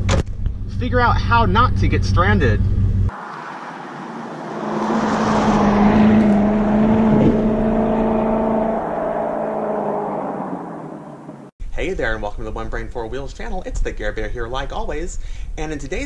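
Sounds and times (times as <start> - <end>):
car driving past: 3.1 - 11.5.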